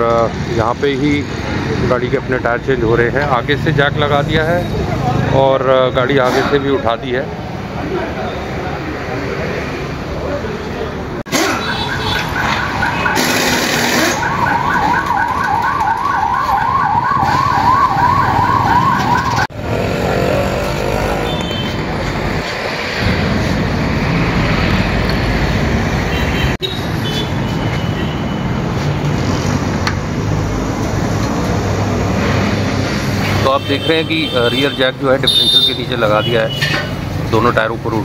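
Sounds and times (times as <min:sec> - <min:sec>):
traffic: 0:00.0 - 0:38.0
workshop noise: 0:00.0 - 0:38.0
siren yelping: 0:11.3 - 0:19.6.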